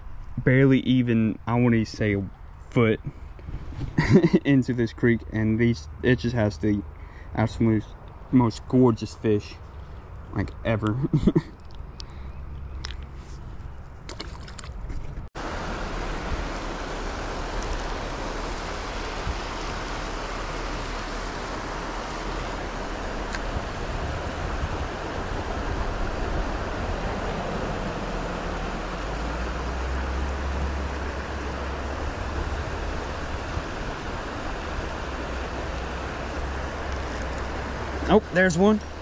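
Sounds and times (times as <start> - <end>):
creek water running over rocks: 14.1 - 39.0.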